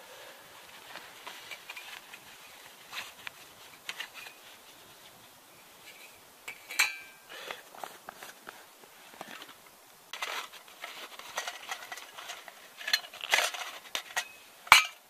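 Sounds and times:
small clicks and rustles: 0.6s - 6.8s, 7.4s - 14.8s
sharp metallic clink: 6.5s - 7.2s.

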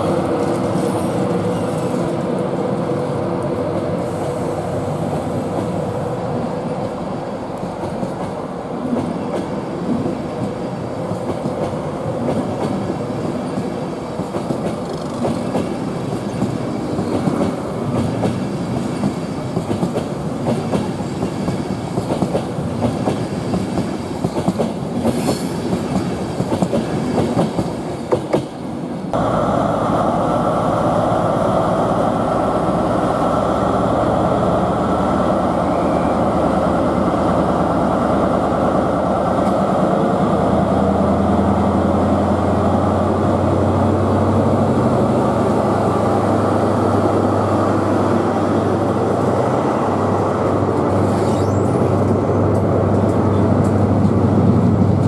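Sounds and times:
train wheels clicking over rail joints: 3.5s - 6.0s, 6.6s - 28.6s
diesel locomotive running: 29.1s - 55.0s.

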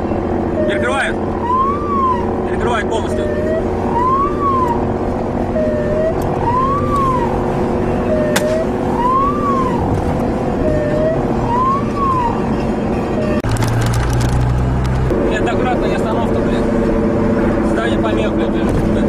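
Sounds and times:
road noise: 0.0s - 19.0s
vehicle engine drone: 0.0s - 19.0s
police car siren cycling: 0.5s - 13.5s.

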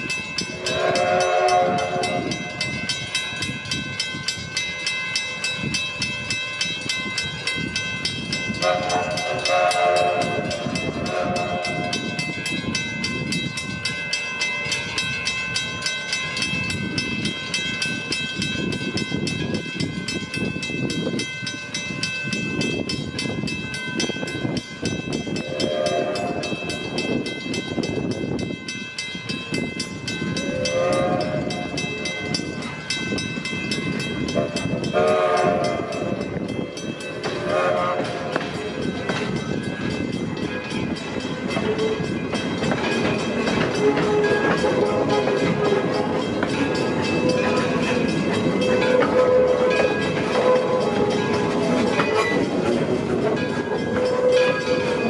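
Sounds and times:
steam locomotive running: 0.0s - 55.0s
steam locomotive whistle: 0.6s - 2.6s, 8.6s - 12.2s, 25.4s - 26.8s, 30.4s - 32.2s, 34.4s - 36.2s, 37.4s - 38.5s, 47.0s - 52.5s, 53.9s - 55.0s.

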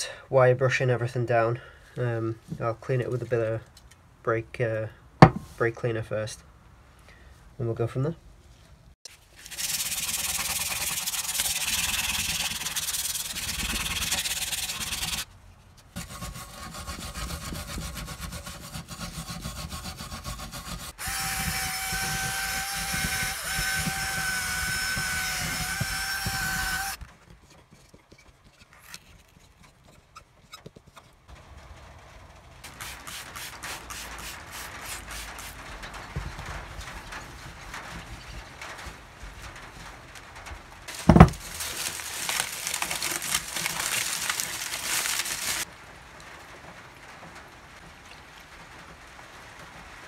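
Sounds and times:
stiff brush scrubbing metal: 9.1s - 31.1s, 32.7s - 38.5s, 40.9s - 45.7s.

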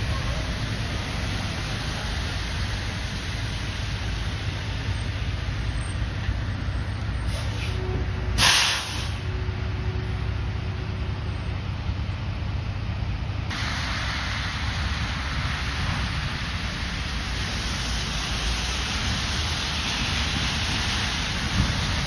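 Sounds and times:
truck engine rumble: 0.0s - 22.0s
tyre noise on wet pavement: 0.0s - 22.0s
air brakes hissing: 7.1s - 9.3s.

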